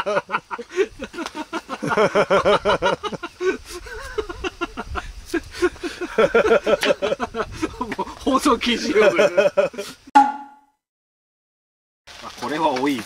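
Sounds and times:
person laughing heartily: 0.0s - 8.2s, 8.9s - 10.0s.

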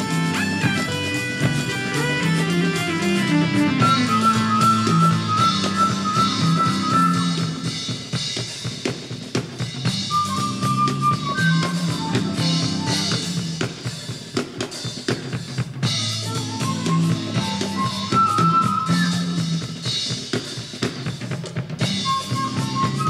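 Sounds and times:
held melody: 0.0s - 8.0s, 10.1s - 13.7s, 16.0s - 20.0s, 21.9s - 23.0s
bass line: 0.0s - 8.1s, 9.9s - 13.8s, 15.8s - 20.0s, 21.8s - 23.0s
drum kit played hard: 0.0s - 23.0s.

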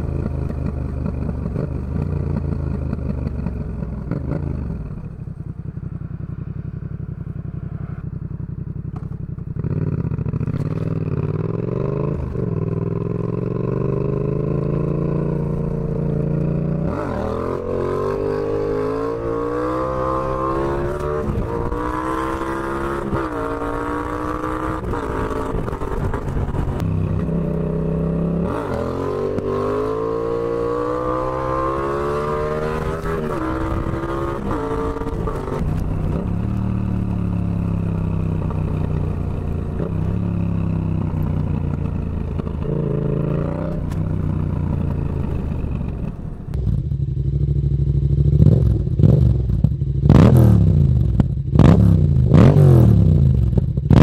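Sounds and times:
motorcycle engine accelerating: 0.0s - 54.0s.

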